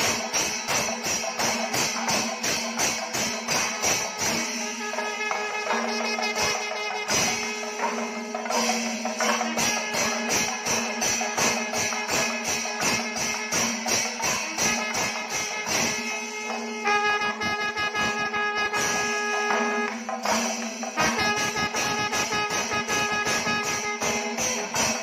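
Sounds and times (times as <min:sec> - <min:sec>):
drums beating: 0:00.0 - 0:25.0
hand cymbals: 0:00.0 - 0:25.0
brass horns long notes: 0:15.6 - 0:20.0, 0:21.0 - 0:24.5.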